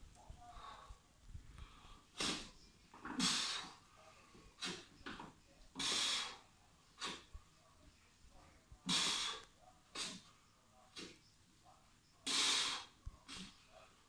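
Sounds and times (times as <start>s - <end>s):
man breathing forcefully: 3.1s - 3.8s, 5.8s - 7.3s, 8.9s - 9.4s, 12.3s - 13.5s.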